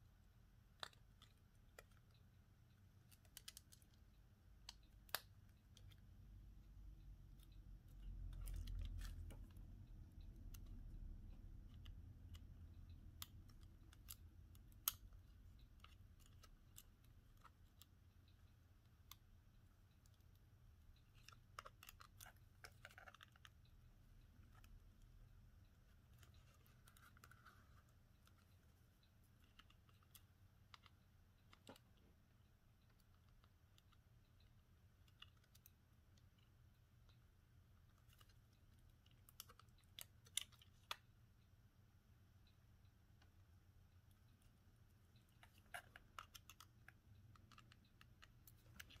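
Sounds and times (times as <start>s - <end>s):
small clicks and taps from tools: 0.6s - 37.2s.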